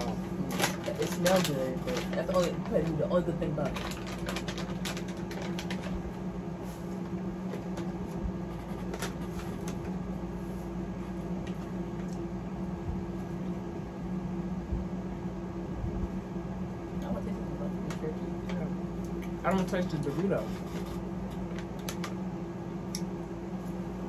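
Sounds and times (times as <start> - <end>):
plastic packet crinkling: 0.0 - 6.1
steady low hum: 0.0 - 24.0.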